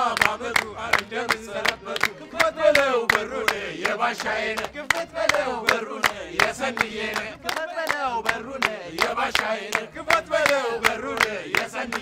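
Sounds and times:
group singing a chant: 0.0s - 12.0s
hand claps: 0.0s - 12.0s.

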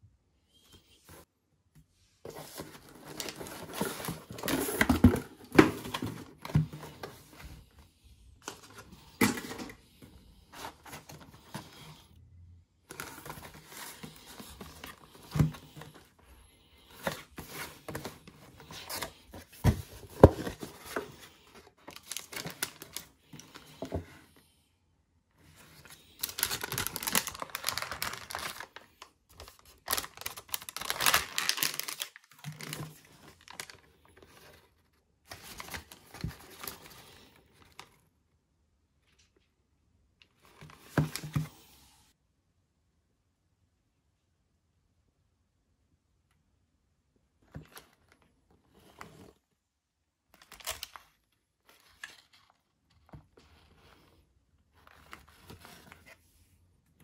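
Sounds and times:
wrapping crinkling and tearing: 26.0s - 33.8s, 50.4s - 52.6s.

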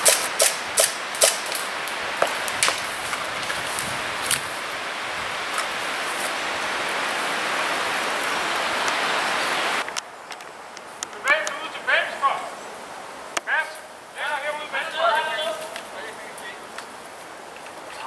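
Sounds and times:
airsoft gunfire snaps: 0.0s - 2.8s
steady hiss: 0.0s - 18.0s.

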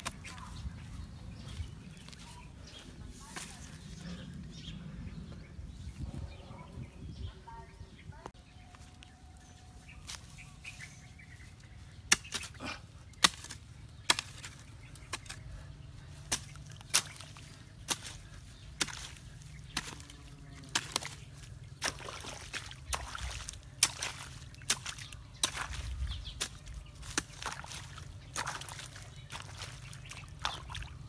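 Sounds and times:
water splashing and sloshing: 16.1s - 31.0s.

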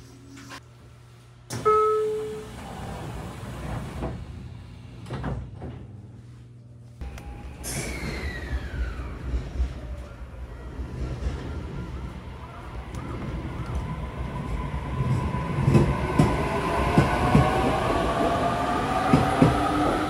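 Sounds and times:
door warning ringing tone: 1.6s - 2.6s.

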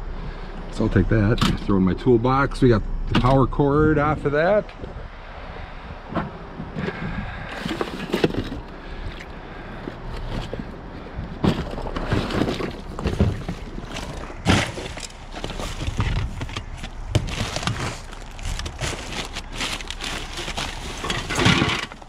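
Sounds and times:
trash rustling in metal dumpster: 6.8s - 8.7s, 9.9s - 22.0s
knocks and clatters in dumpster: 11.4s - 22.0s.

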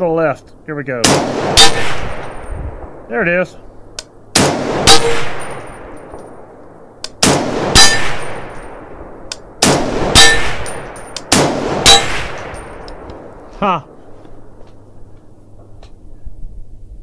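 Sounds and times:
rifle shots: 1.0s - 2.5s, 4.3s - 6.3s, 7.1s - 13.1s
steel target ringing clang: 4.9s - 6.2s, 7.8s - 8.8s, 10.1s - 11.2s, 11.8s - 12.9s.

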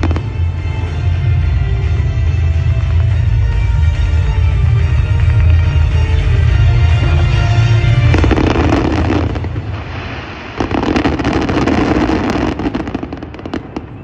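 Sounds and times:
fireworks bursting and crackling: 0.0s - 14.0s
show music: 0.0s - 14.0s.

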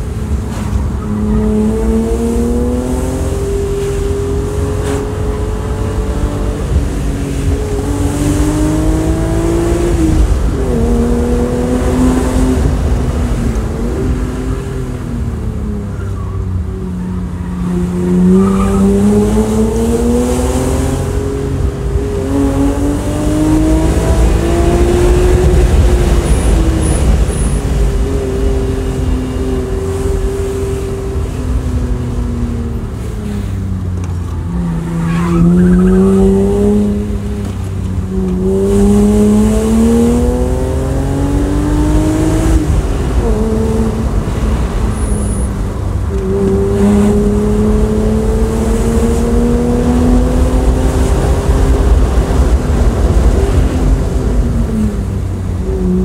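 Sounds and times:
car engine revving under acceleration: 0.0s - 16.0s, 16.7s - 56.0s.

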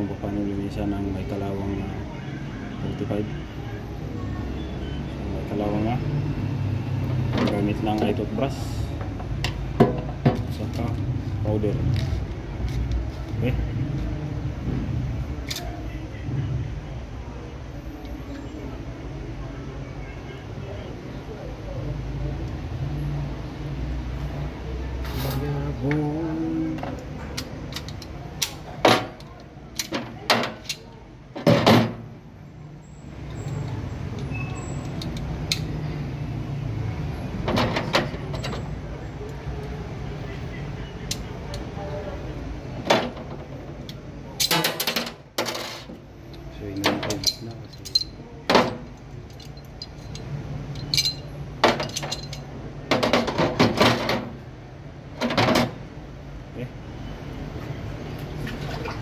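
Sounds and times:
metal pistol parts clicking: 15.4s - 15.8s, 27.0s - 30.9s, 33.4s - 35.8s, 41.0s - 41.7s
metal parts clinking: 26.8s - 31.9s, 42.8s - 54.4s
parts clattering on plastic tray: 44.4s - 46.0s, 50.8s - 54.4s.

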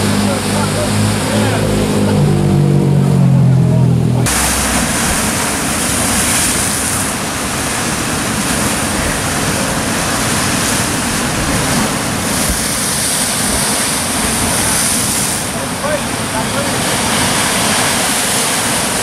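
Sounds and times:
sea surf breaking on rocks: 4.2s - 19.0s.

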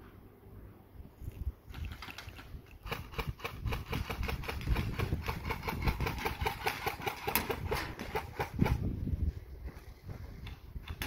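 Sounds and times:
airsoft gun firing rapidly: 2.8s - 8.8s.

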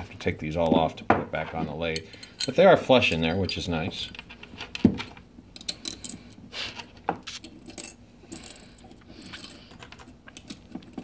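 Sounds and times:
small metal clicks and clinks: 5.6s - 6.4s.

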